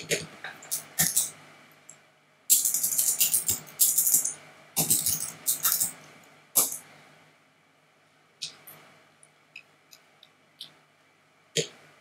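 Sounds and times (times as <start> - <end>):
computer keyboard typing: 0.6 - 1.3, 2.5 - 6.0.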